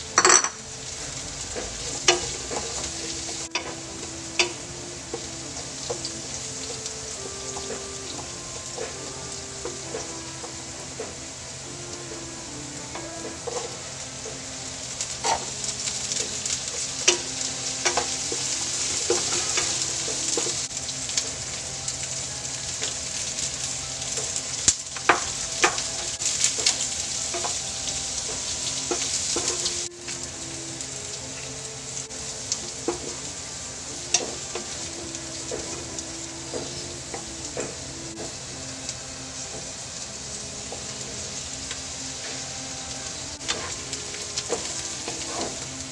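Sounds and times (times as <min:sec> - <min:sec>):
vegetables sizzling in a wok: 0:00.0 - 0:45.9
wooden spatula scraping a pan: 0:13.3 - 0:20.8, 0:43.4 - 0:45.9.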